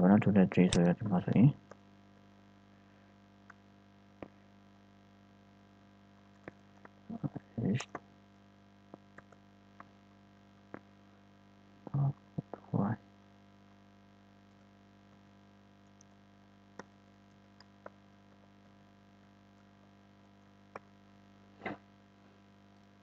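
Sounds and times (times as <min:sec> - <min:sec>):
electrical hum: 0:00.0 - 0:23.0
keyboard clicks: 0:06.3 - 0:07.0, 0:09.0 - 0:09.9.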